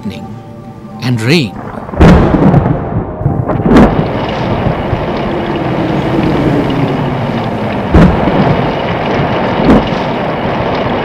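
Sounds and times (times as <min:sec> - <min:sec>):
rain rushing: 0:00.1 - 0:11.0
thunder cracks: 0:01.5 - 0:11.0.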